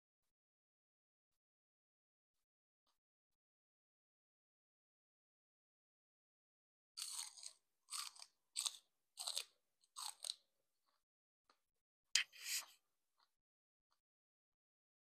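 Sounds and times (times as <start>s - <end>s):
celery crunching while chewing: 7.0s - 10.4s
sharp celery crack: 7.0s - 10.4s.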